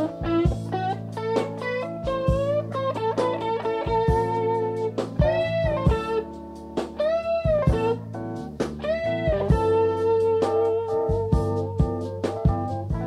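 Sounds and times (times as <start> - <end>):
electric guitar bent notes: 0.0 - 13.0
jazz fusion band playing: 0.0 - 13.0.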